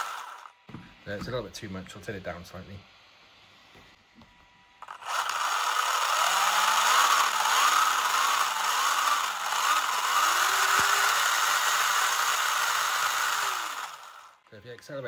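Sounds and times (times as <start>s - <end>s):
toy car electric motor whirring: 0.0s - 0.6s, 4.8s - 14.4s.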